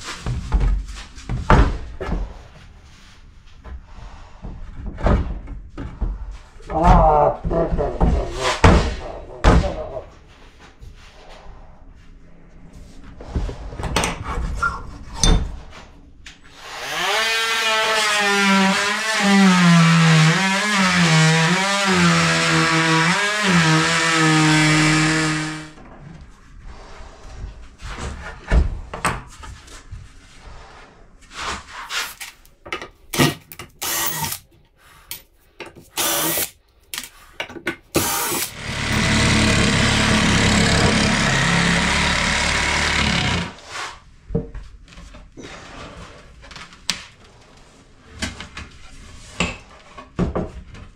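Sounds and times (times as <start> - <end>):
cordless power tool cutting: 33.8 - 34.4, 36.0 - 36.5, 38.0 - 43.6.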